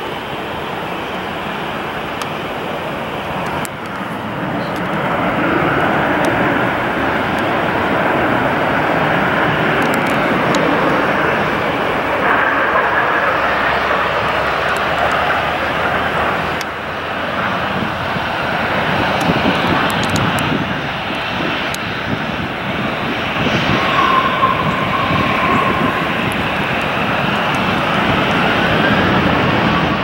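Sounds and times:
jet engines roaring: 0.0s - 30.0s
faint whine: 21.4s - 30.0s.

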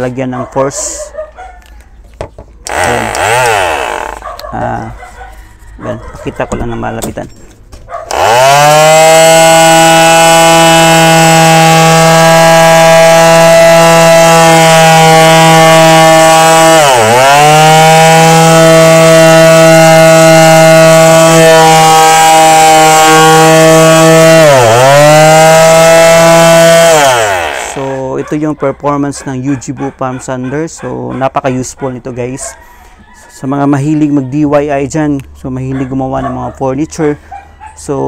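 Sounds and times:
palm sander sanding wood: 2.7s - 4.9s, 8.1s - 28.1s.

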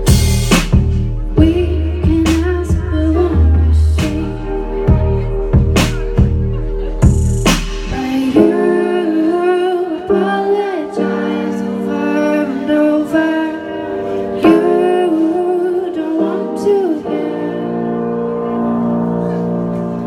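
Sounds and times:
band with electric guitar and drums: 0.0s - 8.4s
woman singing: 1.1s - 6.2s, 7.8s - 18.4s.

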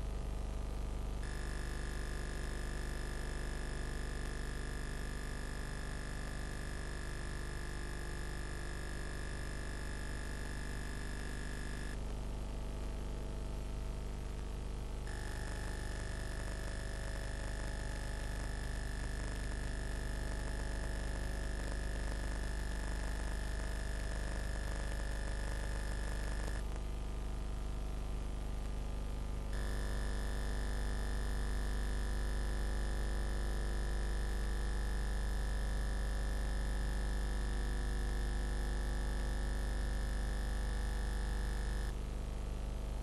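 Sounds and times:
electrical hum and buzz: 15.0s - 18.5s, 25.0s - 26.8s, 28.9s - 31.8s.

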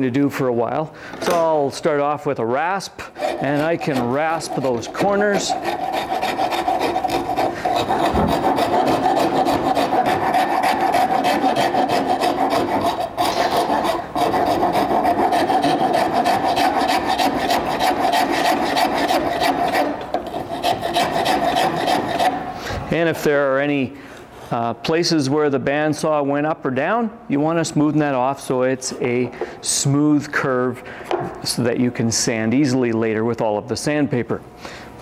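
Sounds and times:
wood rasp strokes: 3.0s - 22.6s.

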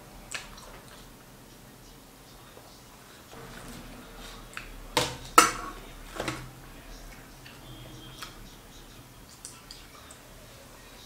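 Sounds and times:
fried fish knocking on steel plate: 5.0s - 6.4s.

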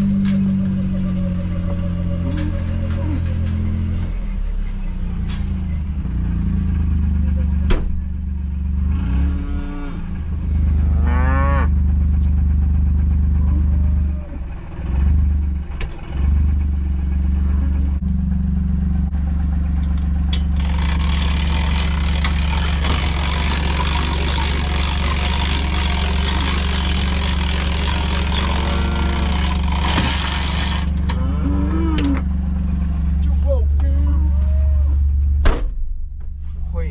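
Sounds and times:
utility vehicle idling hum: 0.0s - 36.9s
cattle mooing: 9.0s - 11.8s, 22.7s - 32.4s, 33.8s - 35.0s.

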